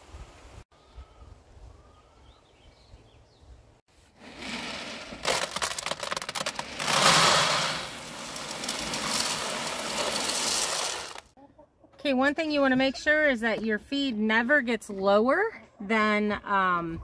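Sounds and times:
pellets pouring into plastic bin: 4.3 - 11.3.

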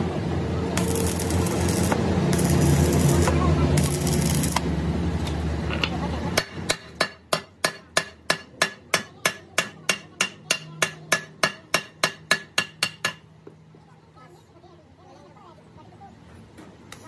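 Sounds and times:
hammer striking metal: 6.4 - 13.3.

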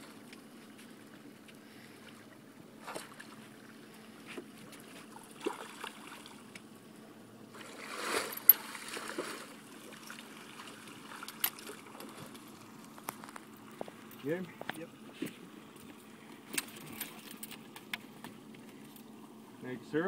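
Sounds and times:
boat motor humming: 0.0 - 20.0
fish splashing in a net: 5.1 - 6.4, 7.5 - 12.3.

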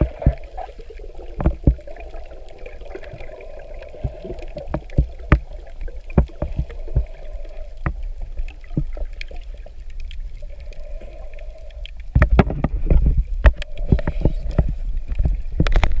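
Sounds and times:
water rushing and churning: 0.0 - 16.0
faint hum: 10.2 - 15.6
sharp clicks and knocks: 12.1 - 16.0.

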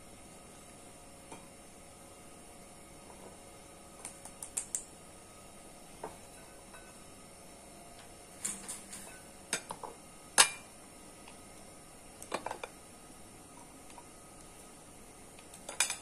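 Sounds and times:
utensils and dishes clinking: 8.4 - 9.8, 15.4 - 16.0.

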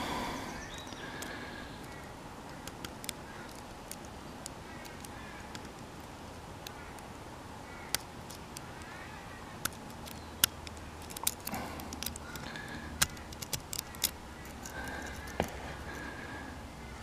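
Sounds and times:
lock picking metallic clicks: 0.7 - 6.8, 9.6 - 15.9.

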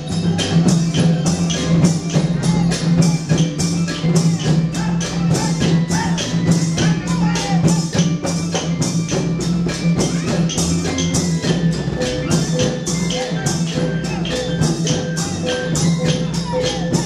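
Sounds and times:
drums beating fast: 0.0 - 17.0.

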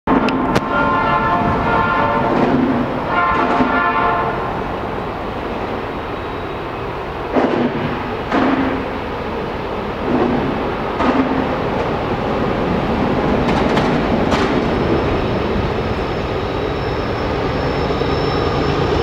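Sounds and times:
train diesel engines rumbling: 0.1 - 19.0
diesel locomotive horn: 0.5 - 4.8.

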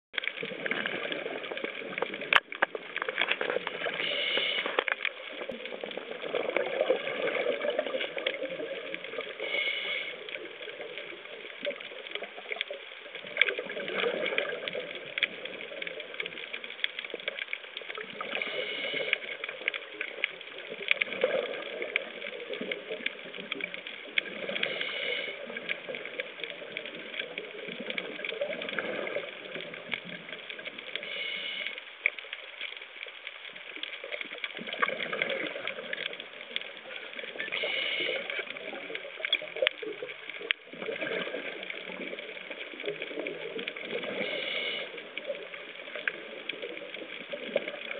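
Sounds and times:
crackle of small clicks underwater: 0.2 - 47.9
diver breathing through regulator: 3.8 - 4.9, 9.3 - 10.4, 18.2 - 19.4, 24.4 - 25.6, 31.0 - 31.9, 37.6 - 38.5, 44.0 - 45.0.

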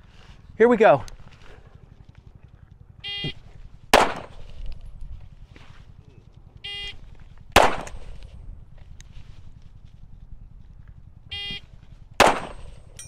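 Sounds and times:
pistol shot: 3.9 - 4.5, 7.5 - 8.4, 12.2 - 13.0.

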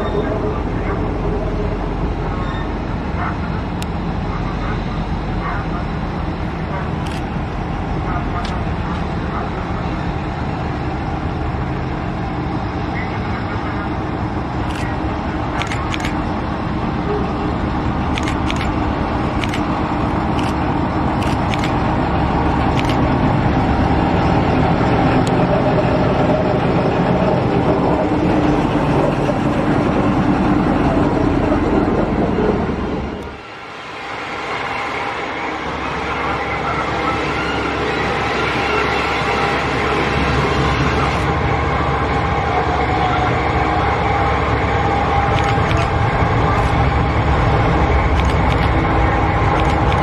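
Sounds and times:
diesel locomotive passing: 0.0 - 50.0
sharp clicks: 45.4 - 45.9, 48.1 - 48.8.

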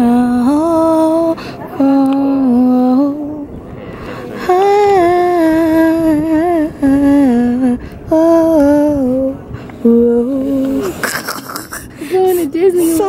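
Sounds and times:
woman humming a slow tune: 4.4 - 13.0.

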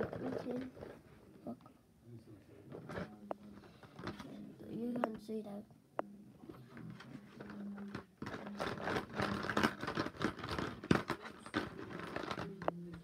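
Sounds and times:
markers rattling in plastic bucket: 0.0 - 0.9, 7.0 - 13.0.

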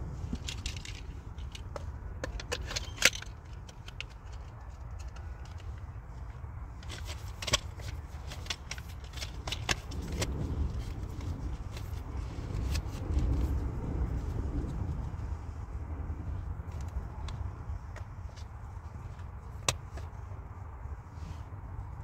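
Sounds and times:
low steady rumble: 0.0 - 22.0
plastic cases clicking: 0.4 - 5.7, 6.8 - 12.0.

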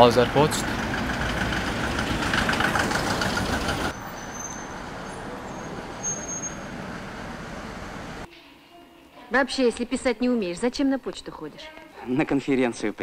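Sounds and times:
vehicle passing close by: 0.0 - 8.3.

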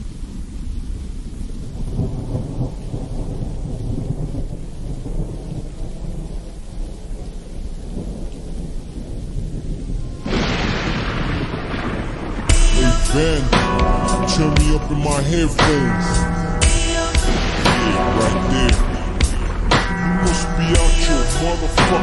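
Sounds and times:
low rolling thunder: 0.0 - 22.0
rain: 0.0 - 22.0
bright hiss: 15.6 - 22.0.

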